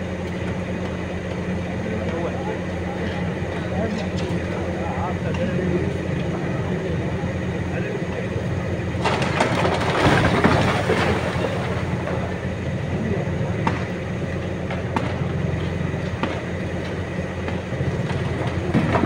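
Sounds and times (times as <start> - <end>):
engine low hum: 0.0 - 19.0
rubble crashing down: 9.0 - 12.1.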